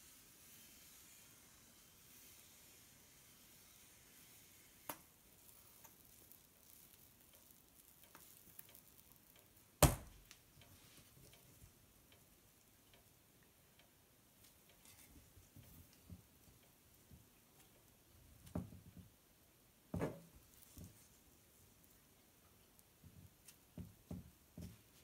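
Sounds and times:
batter sizzling on a hot plate: 0.0s - 13.2s, 19.9s - 25.0s
small ticks: 4.9s - 9.7s.

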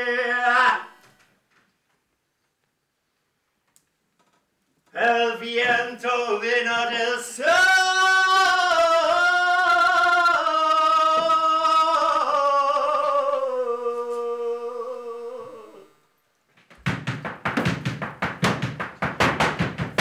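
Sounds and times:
man singing unaccompanied: 0.0s - 1.0s, 4.9s - 16.0s.

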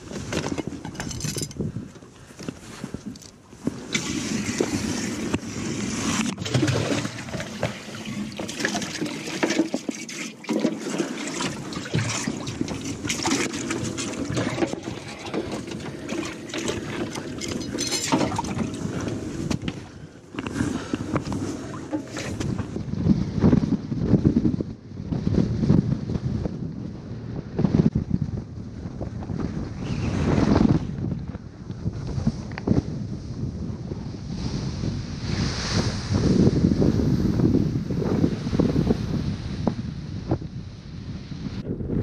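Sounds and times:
water sloshing and splashing: 2.6s - 22.8s.

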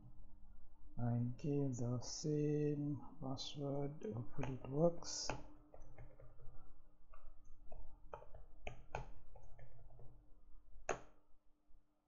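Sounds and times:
computer keyboard typing: 5.3s - 6.7s, 7.7s - 10.0s.

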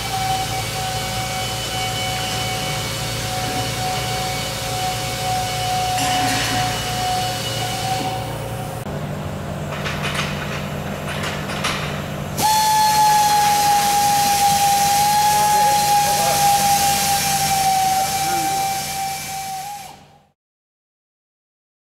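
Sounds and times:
power tool whining: 0.0s - 8.9s
workshop hum: 0.0s - 20.3s.

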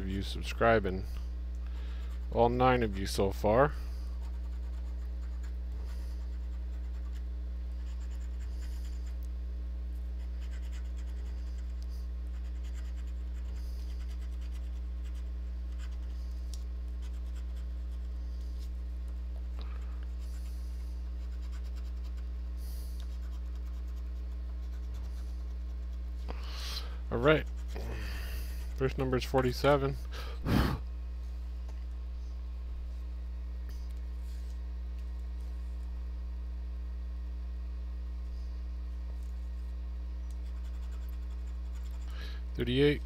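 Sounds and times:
steady low hum: 0.0s - 43.0s
coin scratching lottery ticket: 4.2s - 7.2s, 7.8s - 9.2s, 10.2s - 16.2s, 17.0s - 18.1s, 21.2s - 22.3s, 23.1s - 26.0s, 27.2s - 27.8s, 40.4s - 42.2s.

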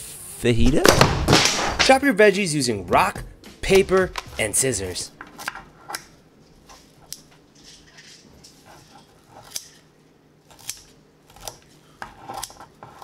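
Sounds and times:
scissors snipping herbs: 10.5s - 11.7s.

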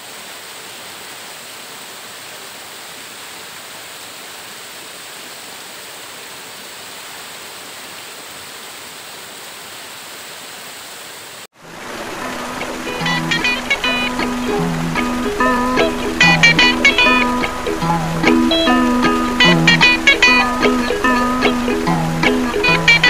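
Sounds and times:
waterfall pouring onto rocks: 11.5s - 23.0s.

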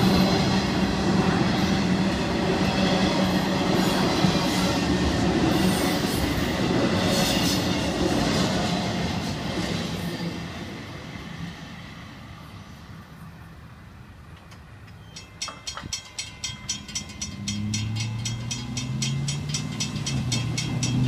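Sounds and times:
freight train rumble: 0.0s - 21.0s
crossing bell ringing: 14.9s - 21.0s
car engines: 16.8s - 21.0s.

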